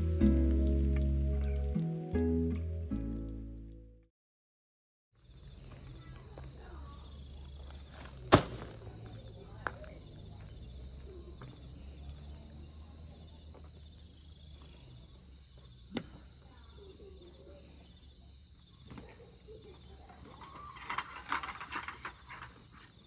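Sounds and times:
crickets chirring: 0:05.2 - 0:23.0.

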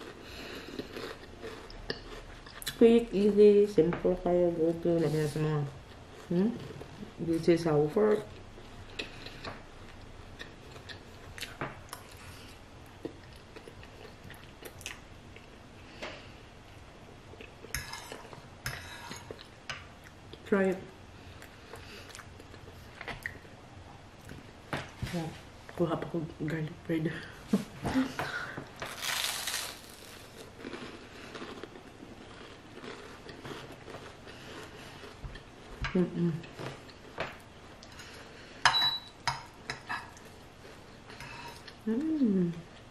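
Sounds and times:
person chewing: 0:00.0 - 0:02.8, 0:08.3 - 0:15.6, 0:21.4 - 0:23.5, 0:28.8 - 0:35.8.

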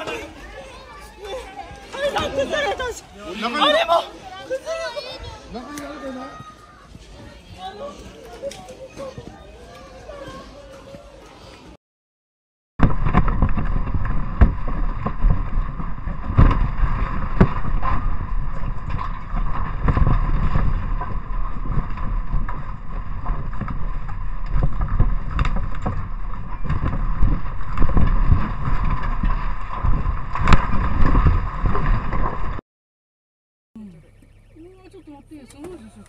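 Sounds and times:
earthquake rumble: 0:12.8 - 0:32.6.

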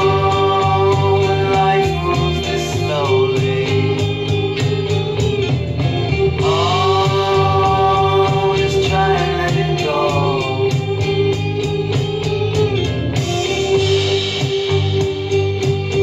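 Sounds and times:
man singing: 0:00.0 - 0:04.8, 0:06.4 - 0:11.1
electric bass guitar: 0:00.0 - 0:16.0
steady beat: 0:00.0 - 0:16.0.

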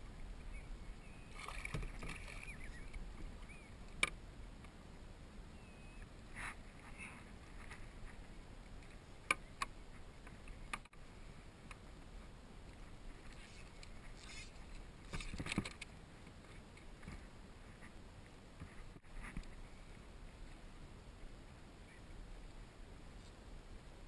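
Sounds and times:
faint water lapping: 0:00.5 - 0:03.9.

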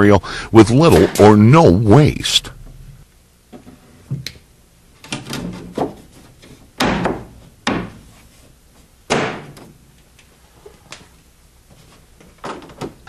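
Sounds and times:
wooden boards knocking: 0:06.8 - 0:08.0.

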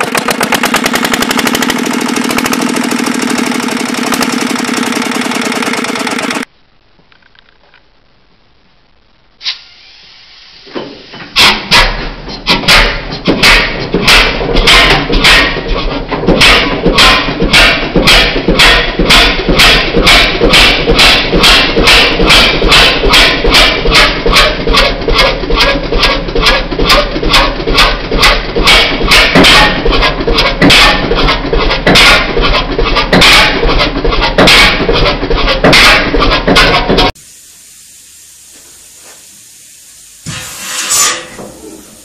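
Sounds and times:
diesel engine exhaust beats: 0:00.0 - 0:06.5, 0:10.4 - 0:42.0
old engine knocks and puffs: 0:00.0 - 0:06.5, 0:10.7 - 0:37.2.

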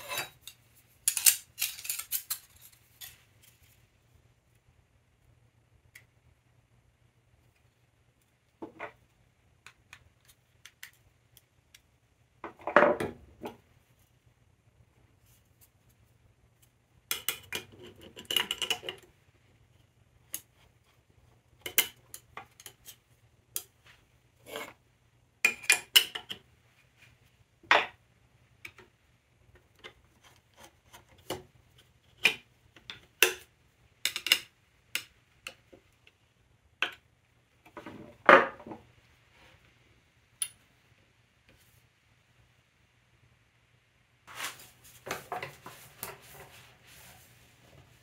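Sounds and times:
metal parts clattering: 0:00.0 - 0:03.2.

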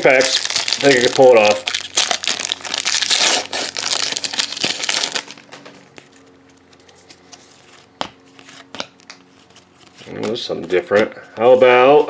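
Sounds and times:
foil wrapper crinkling: 0:00.0 - 0:06.2.

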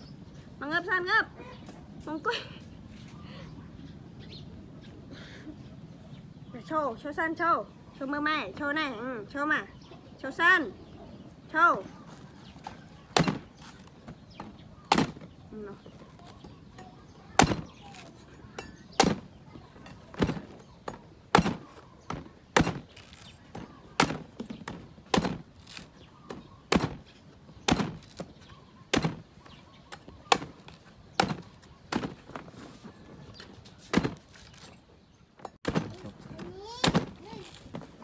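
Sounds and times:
cleaver chopping coconut husk: 0:12.6 - 0:15.3, 0:17.3 - 0:32.4, 0:33.8 - 0:34.7.

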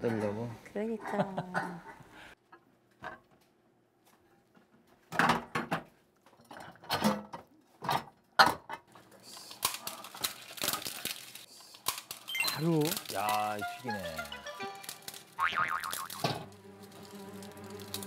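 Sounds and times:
rice paper crackling: 0:09.2 - 0:18.0.

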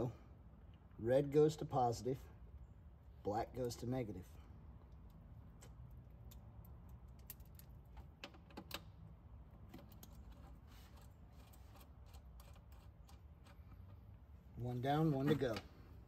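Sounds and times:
small metallic clicks and taps: 0:04.9 - 0:08.9.

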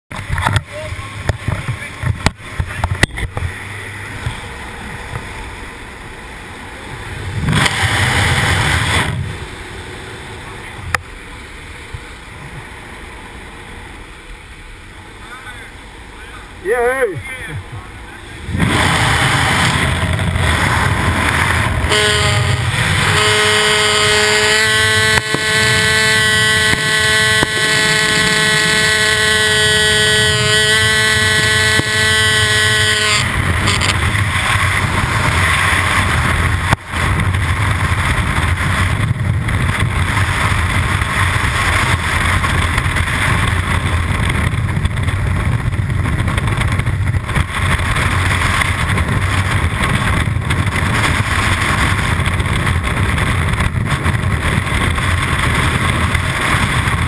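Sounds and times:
aircraft engine and propeller drone: 0:00.1 - 0:12.8
freefall wind rush: 0:00.1 - 0:57.0
rushing wind: 0:00.1 - 0:57.0.

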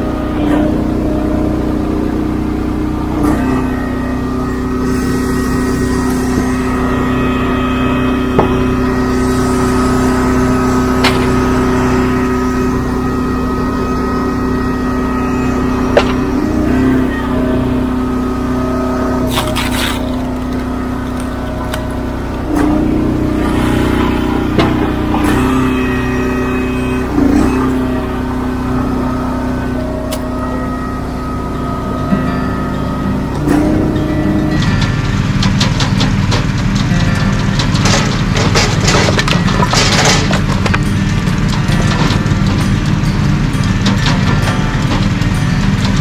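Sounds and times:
log splitter engine running: 0:00.0 - 0:46.0
wood splitting cracks: 0:19.3 - 0:21.8.

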